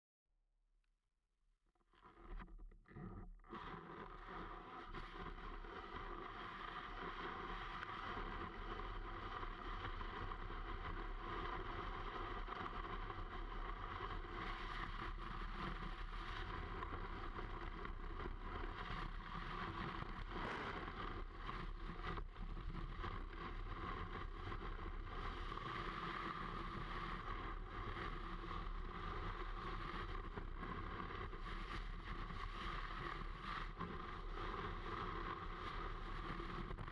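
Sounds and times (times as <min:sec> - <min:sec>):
snowboard hissing over snow: 0:20.2 - 0:21.1.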